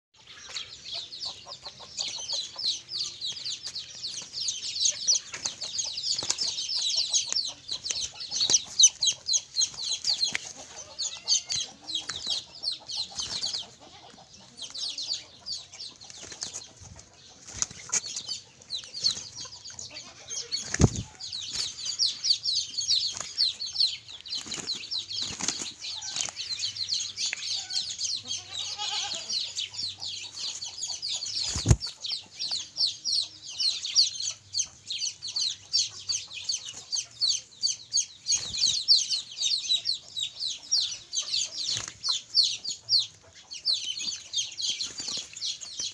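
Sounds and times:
wings flapping: 16.1 - 16.8, 17.4 - 18.3, 20.6 - 21.8, 24.4 - 26.5, 31.4 - 32.0.

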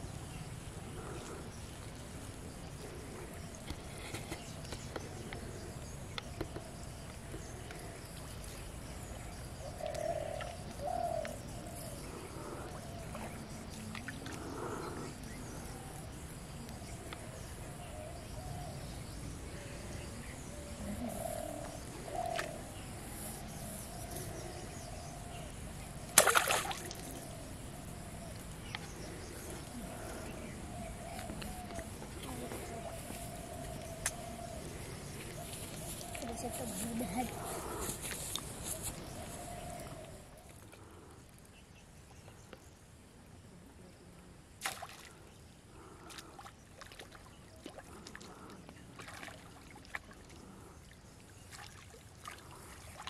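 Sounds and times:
low outdoor background noise: 0.0 - 53.0
dove cooing: 20.5 - 24.4, 27.0 - 40.3.

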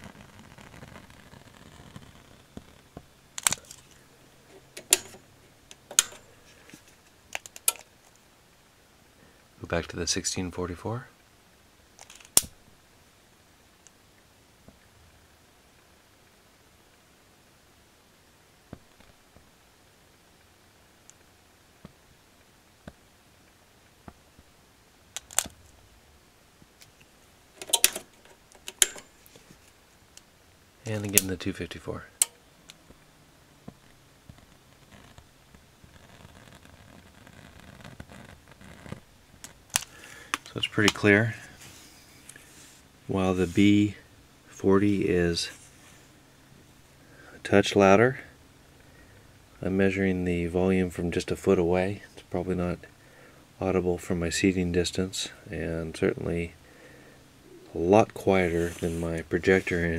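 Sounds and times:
faint fan hiss: 0.0 - 59.9
sharp clicks and rattles: 3.4 - 6.3, 7.3 - 8.2, 12.0 - 12.5, 27.6 - 29.4.

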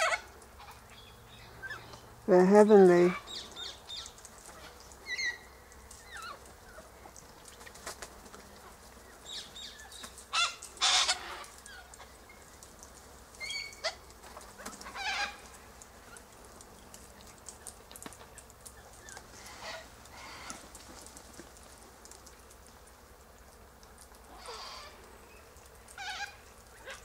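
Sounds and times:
cockatoos squawking: 25.9 - 27.0.

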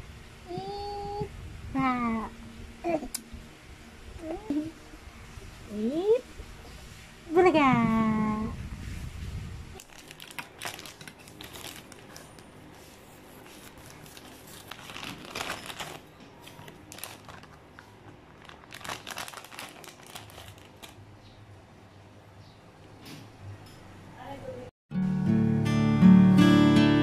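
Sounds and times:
plastic bag crinkling: 9.8 - 21.0.

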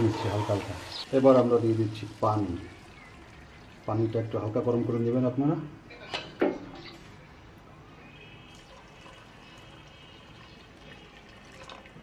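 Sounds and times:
water pouring into pot: 0.0 - 4.5, 8.5 - 12.0.

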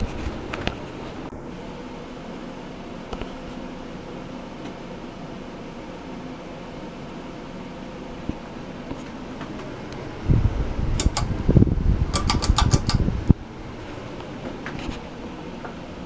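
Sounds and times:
ceiling fan whirring: 0.0 - 16.0
loud low rumble: 10.1 - 12.2
pull chain clicking: 12.2 - 13.0.

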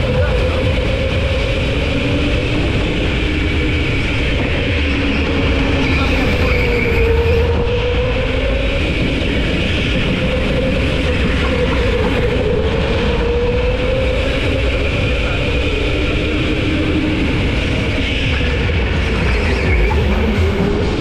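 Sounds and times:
go-kart engine running: 0.0 - 21.0
low rumble: 0.0 - 21.0.

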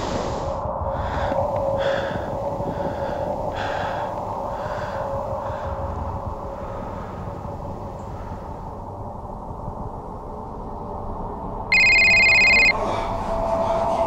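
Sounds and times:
man breathing hard: 0.0 - 7.5
steady hum: 11.7 - 12.8.

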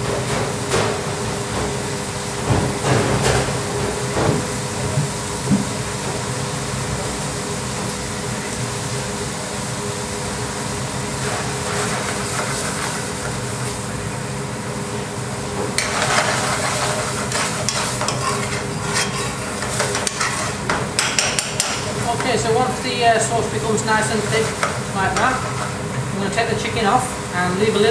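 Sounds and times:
gas burner and extraction hum: 0.0 - 27.9
curry sizzling in frying pan: 5.8 - 26.7
spoon scraping metal pan: 15.8 - 20.7.

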